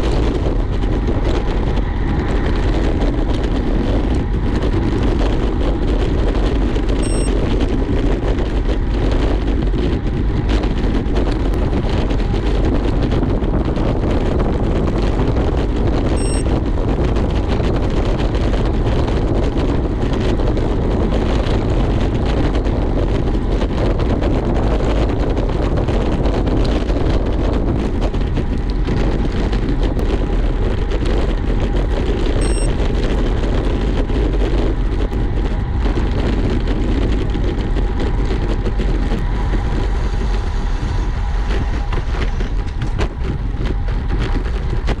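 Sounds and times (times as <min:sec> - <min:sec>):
road noise: 0:00.0 - 0:45.0
wind rushing over microphone: 0:00.0 - 0:45.0.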